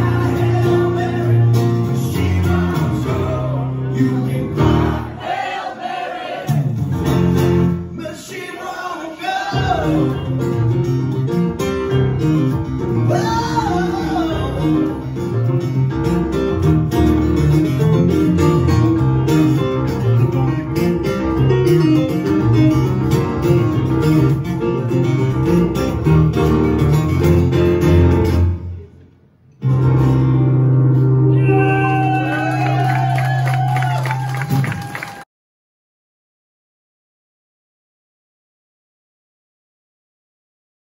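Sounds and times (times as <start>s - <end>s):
man singing: 0.0s - 5.0s, 7.9s - 10.4s, 13.1s - 15.0s
acoustic guitar: 0.0s - 5.2s, 6.4s - 8.4s, 9.2s - 35.2s
stage piano: 0.0s - 35.2s.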